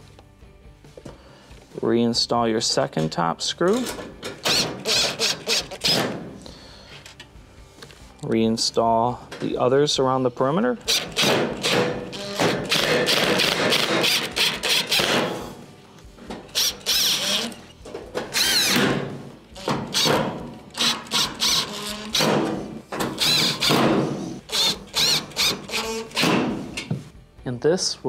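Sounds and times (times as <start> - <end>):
cordless drill driving screws: 4.4 - 6.2, 10.9 - 15.4, 16.5 - 17.7, 18.3 - 26.8.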